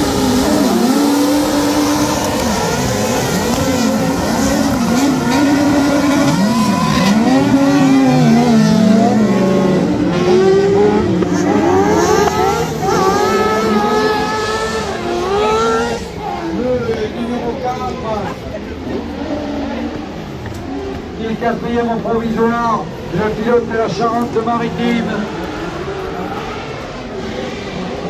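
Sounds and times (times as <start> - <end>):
buggy engines revving: 0.0 - 28.0.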